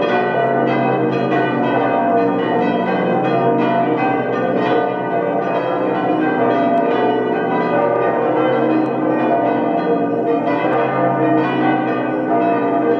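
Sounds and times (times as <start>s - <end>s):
church bells ringing: 0.0s - 12.9s.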